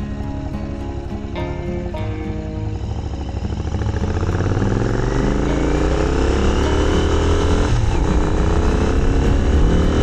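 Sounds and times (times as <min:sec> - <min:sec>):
motorcycle engine accelerating: 0:00.0 - 0:10.0.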